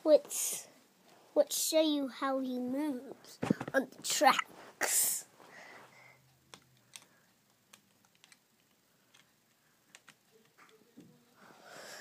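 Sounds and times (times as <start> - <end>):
faint clicks and taps: 6.4 - 11.3.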